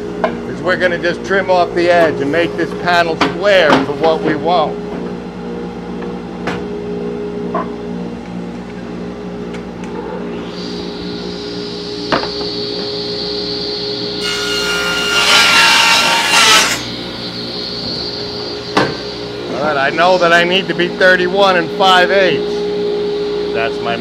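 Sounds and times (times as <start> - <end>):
dust blower hum: 7.3 - 24.0
table saw whining: 9.2 - 24.0
saw blade cutting wood: 14.2 - 17.0.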